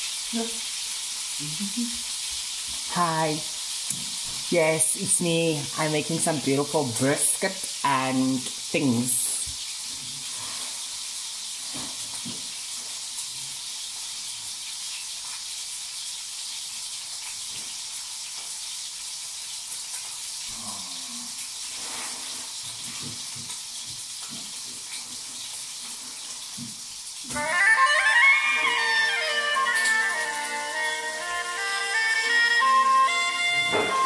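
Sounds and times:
meat sizzling in a frying pan: 0.0s - 33.4s.

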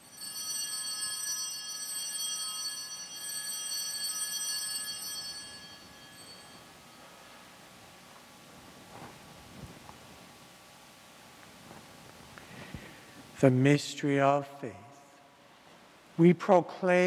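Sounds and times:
altar bell ringing: 0.0s - 7.6s.

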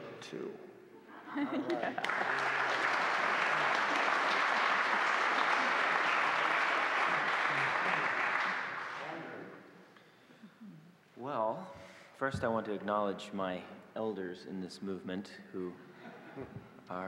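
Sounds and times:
audience applauding: 1.7s - 9.3s.

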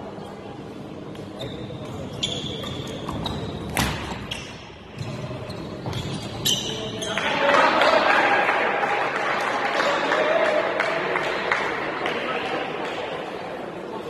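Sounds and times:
rackets hitting shuttlecock: 2.6s - 5.1s.

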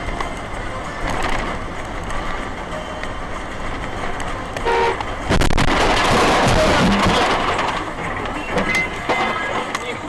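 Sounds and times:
traffic and road noise: 0.0s - 10.0s
vehicle horn toot: 4.6s - 5.0s
sudden loud noise: 5.3s - 8.7s.

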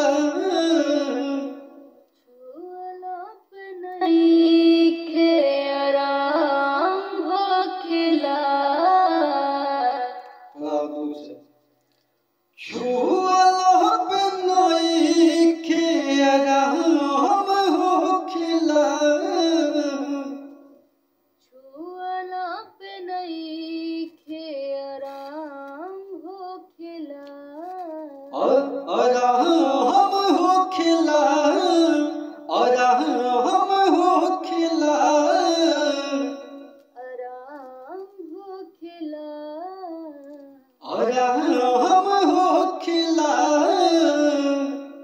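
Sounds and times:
man singing ornamented phrases: 0.0s - 2.5s, 4.1s - 11.4s, 12.6s - 20.8s, 28.2s - 36.8s, 40.8s - 45.0s.

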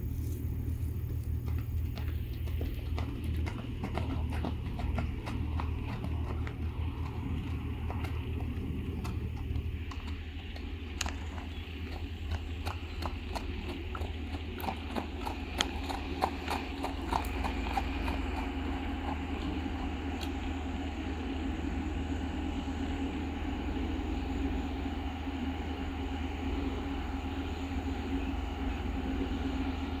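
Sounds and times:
hooves clip-clopping on gravel: 0.0s - 21.2s
mechanical drone: 0.0s - 30.0s.

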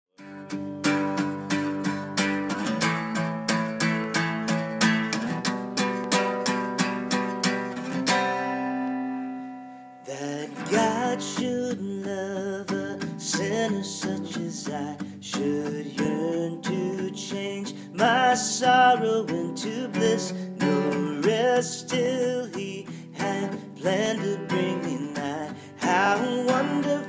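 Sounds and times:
acoustic guitar chords: 0.2s - 27.0s
person singing a hymn: 10.0s - 27.0s.

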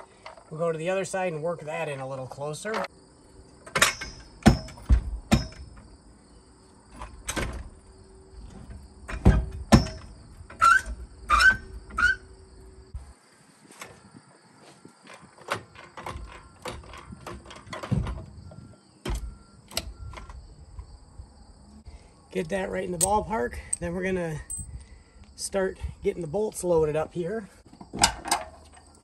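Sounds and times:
insects chirping: 0.0s - 29.0s
metal knocks and clanks: 3.6s - 5.9s, 8.5s - 12.1s, 15.1s - 20.4s.

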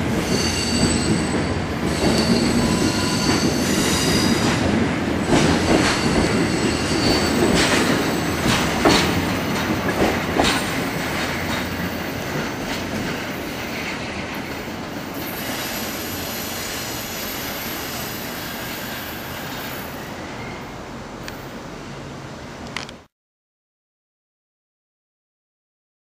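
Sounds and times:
rail clicks: 0.0s - 17.2s
train wheels rolling: 0.0s - 20.6s
faint wheel squeal: 15.3s - 20.8s.

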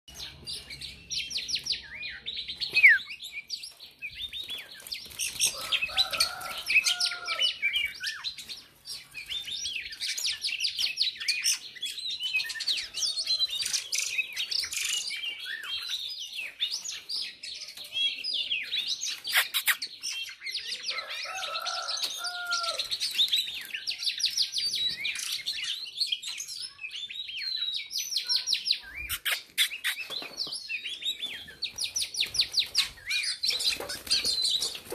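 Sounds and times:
songbird chirping and twittering: 0.0s - 34.9s.

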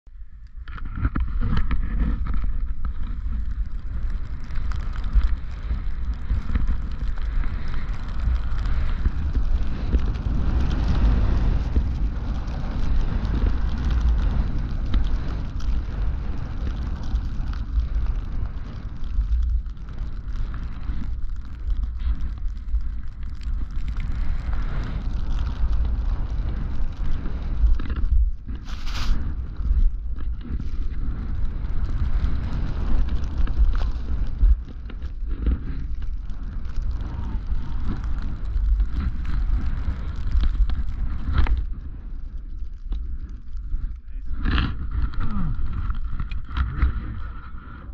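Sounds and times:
wind buffeting microphone: 0.2s - 47.9s
skis hissing through powder snow: 28.5s - 29.5s.

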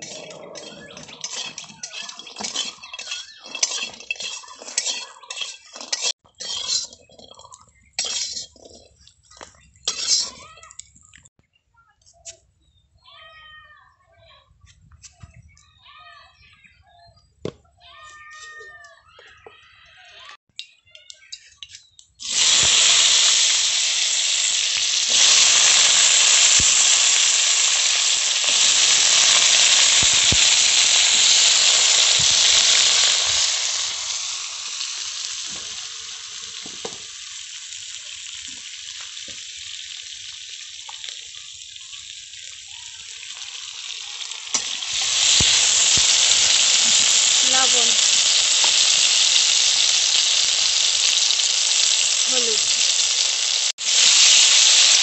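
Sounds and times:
potatoes sizzling in hot oil: 0.0s - 10.8s, 22.2s - 55.0s.

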